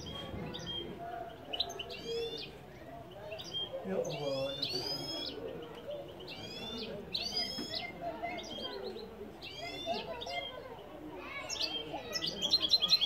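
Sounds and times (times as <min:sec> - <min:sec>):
finch singing: 0:03.2 - 0:13.0.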